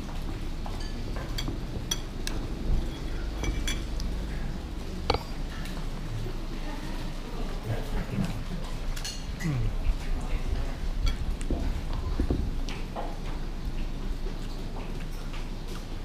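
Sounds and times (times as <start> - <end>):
cutlery clinking on ceramic bowl: 0.7 - 4.0, 5.1 - 5.6.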